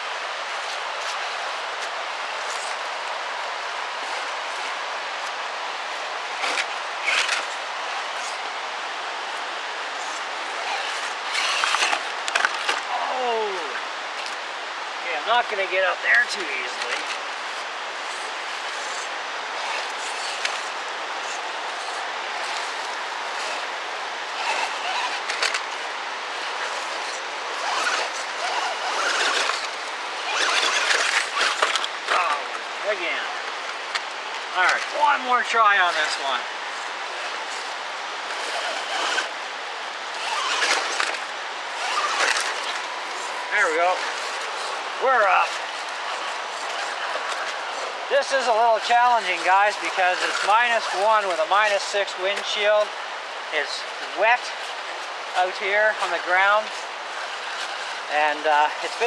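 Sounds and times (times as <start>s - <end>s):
steady rushing hiss: 0.0s - 59.0s
tyres scrabbling over leaves and rock: 0.6s - 8.5s, 9.9s - 14.4s, 16.0s - 52.7s
toy truck electric motor: 6.3s - 8.5s, 10.0s - 12.8s, 16.7s - 32.4s, 35.9s - 39.4s, 40.1s - 47.9s, 48.8s - 51.0s, 56.7s - 58.1s.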